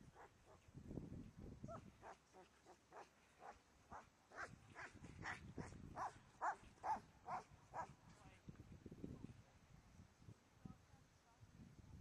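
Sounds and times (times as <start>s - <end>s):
dog barking: 6.0s - 7.9s.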